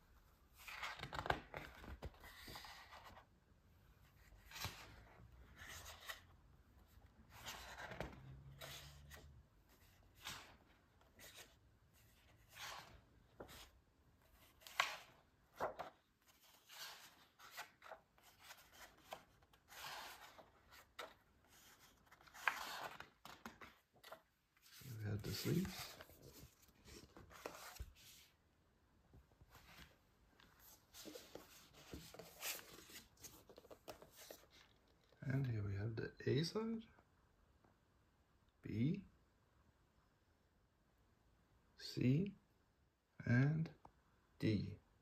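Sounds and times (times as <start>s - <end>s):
paper pages rustling and flipping: 0.6s - 3.3s, 4.2s - 6.3s, 7.3s - 28.3s, 29.5s - 35.2s.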